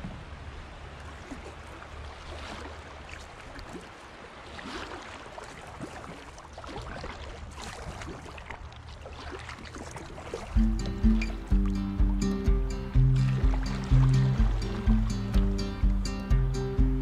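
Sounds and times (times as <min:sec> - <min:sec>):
paddle splashes: 0:00.0 - 0:16.2
river water lapping against hull: 0:00.0 - 0:17.0
steady low rumble: 0:10.6 - 0:17.0.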